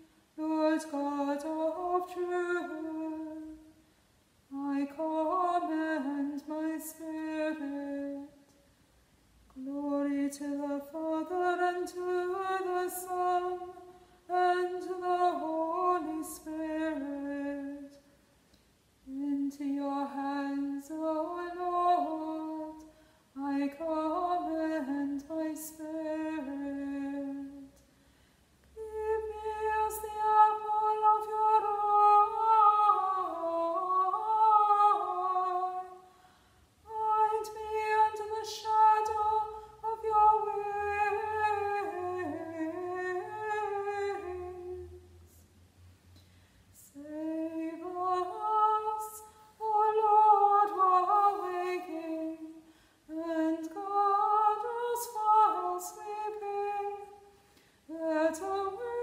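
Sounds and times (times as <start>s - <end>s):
woman singing unaccompanied: 0.0s - 3.8s, 4.5s - 8.6s, 9.5s - 18.1s, 19.0s - 27.8s, 28.8s - 36.1s, 36.8s - 45.4s, 46.8s - 57.3s, 57.9s - 59.0s
singer breathing: 22.9s - 23.3s, 27.9s - 28.6s, 36.1s - 36.8s, 46.2s - 46.8s, 52.6s - 53.1s, 57.4s - 57.9s.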